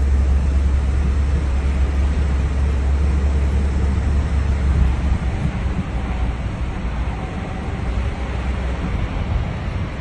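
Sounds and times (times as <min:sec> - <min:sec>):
car interior rumble: 0:00.0 - 0:10.0.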